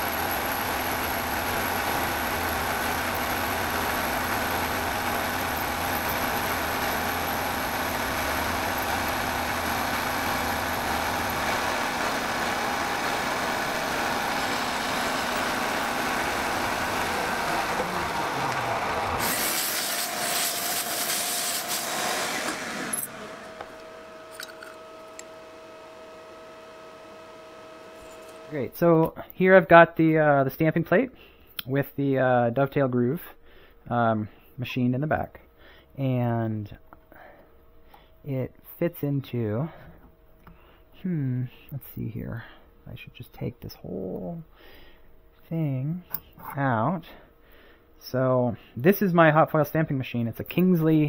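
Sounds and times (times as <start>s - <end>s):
milling machine with high whine: 0.0s - 28.6s
loud hiss: 3.0s - 23.5s.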